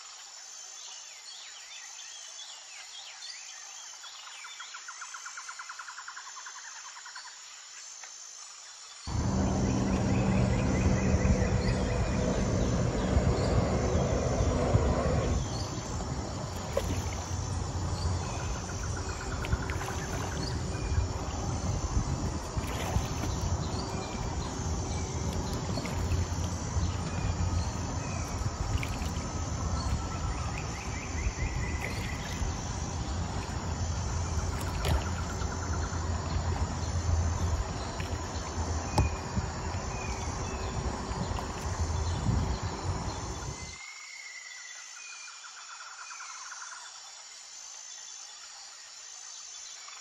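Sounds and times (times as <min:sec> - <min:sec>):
faint steady hum: 0:09.1 - 0:43.7
wind buffeting microphone: 0:09.1 - 0:43.7.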